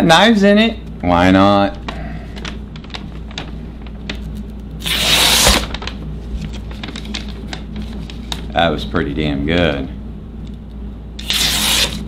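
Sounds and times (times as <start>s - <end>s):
paper rustling: 2.3s - 8.5s
blade slicing through paper: 4.8s - 5.8s, 11.2s - 12.0s.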